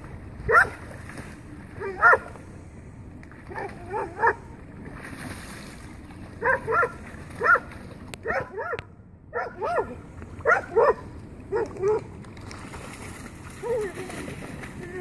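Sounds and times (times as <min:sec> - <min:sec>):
dog barking: 0:00.5 - 0:00.7, 0:01.9 - 0:02.3, 0:06.4 - 0:12.0.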